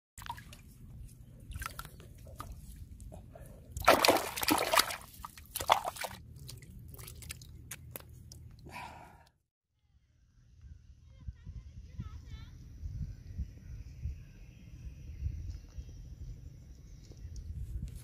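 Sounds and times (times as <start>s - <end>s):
bare foot stamping in water: 0.2s - 0.7s, 1.5s - 2.8s, 3.8s - 8.6s
muddy water splashing: 0.2s - 8.6s
hands churning water: 3.7s - 8.6s.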